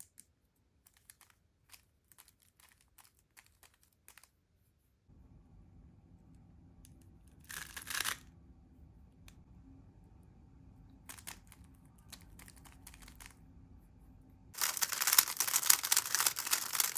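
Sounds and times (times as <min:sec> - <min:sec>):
puzzle cube layers clacking: 0:00.0 - 0:04.3, 0:11.1 - 0:13.4, 0:14.6 - 0:16.9.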